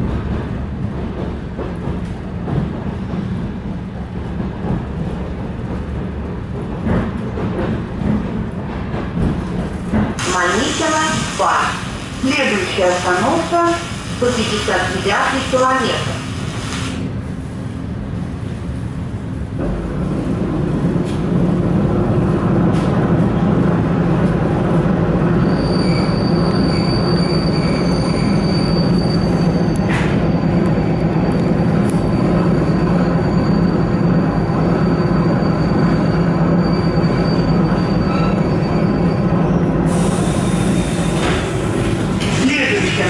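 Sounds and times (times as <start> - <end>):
train wheels and motors rumbling: 0.0 - 43.0
high wheel squeal: 25.4 - 41.0.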